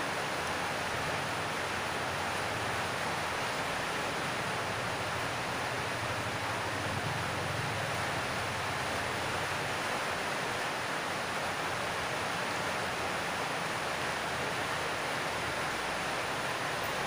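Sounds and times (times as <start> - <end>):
heavy rain on a metal roof: 0.0 - 17.0.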